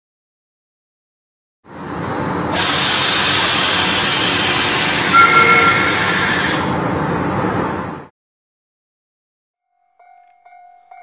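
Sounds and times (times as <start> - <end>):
loud steady hiss: 2.5 - 6.7
short high whistle tone: 5.0 - 6.4.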